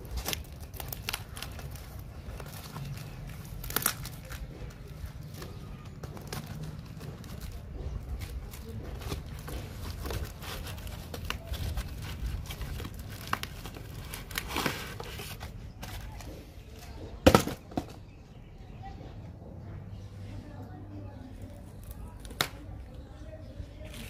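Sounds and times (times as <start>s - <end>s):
cardboard crackling and tearing: 0.0s - 17.6s, 21.4s - 23.2s, 23.8s - 24.0s
box thudding on concrete floor: 17.2s - 18.0s.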